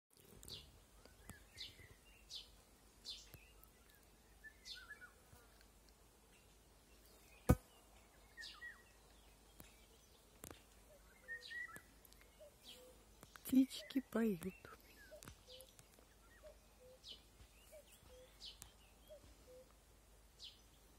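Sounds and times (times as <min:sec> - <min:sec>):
songbirds chirping: 0:00.1 - 0:20.9.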